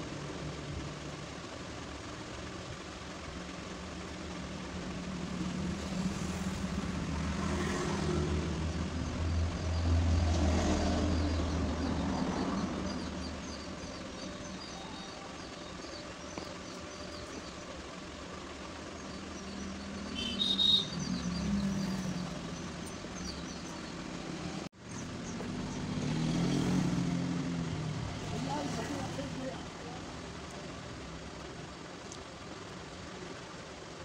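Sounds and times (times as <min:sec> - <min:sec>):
vehicle engine noise: 0:00.0 - 0:34.0
bird chirps: 0:11.0 - 0:17.7, 0:19.0 - 0:24.0.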